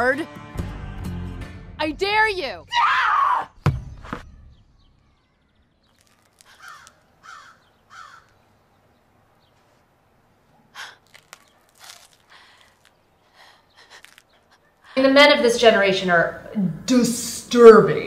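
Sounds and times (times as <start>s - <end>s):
woman screaming: 2.7s - 3.5s.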